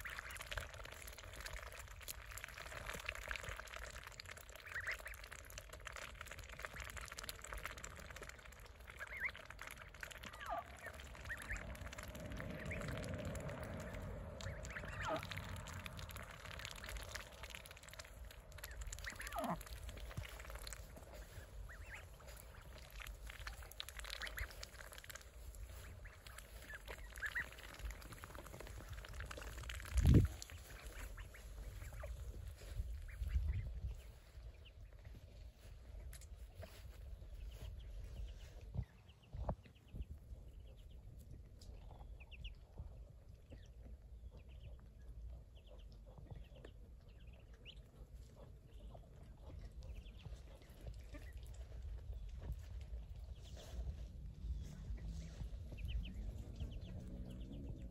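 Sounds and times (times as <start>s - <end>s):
ducks quacking: 8.8s - 29.6s, 30.4s - 33.6s.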